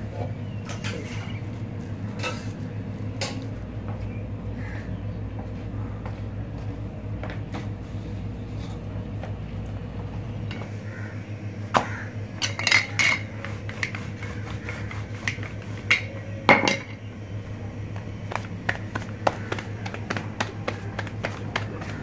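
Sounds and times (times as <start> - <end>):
steady low hum: 0.0 - 22.0
rolling pin rolling dough on stone: 12.4 - 17.0, 18.0 - 22.0.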